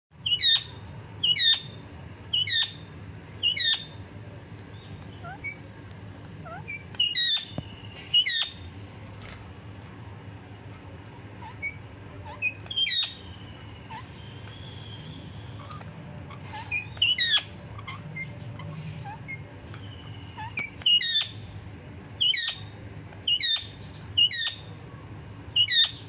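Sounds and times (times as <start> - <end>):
parakeet screeching: 0.2 - 4.0, 5.2 - 5.6, 6.4 - 8.7, 11.4 - 14.2, 14.8 - 21.5, 22.2 - 22.7, 23.3 - 24.7, 25.6 - 26.0
parakeet soft chirps: 0.2 - 5.7, 6.3 - 8.7, 11.4 - 21.6, 22.2 - 24.8, 25.5 - 26.0.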